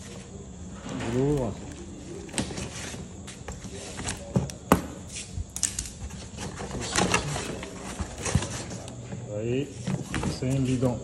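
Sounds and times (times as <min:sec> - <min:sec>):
cardboard and tape crackling: 0:05.5 - 0:09.0.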